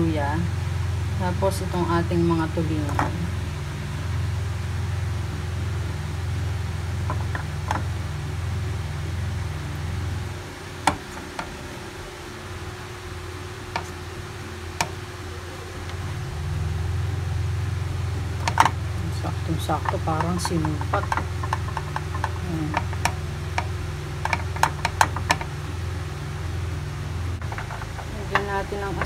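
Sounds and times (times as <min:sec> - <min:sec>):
steady low hum: 0:00.0 - 0:29.0
fish knocking in metal pan: 0:19.8 - 0:25.5, 0:27.4 - 0:28.4.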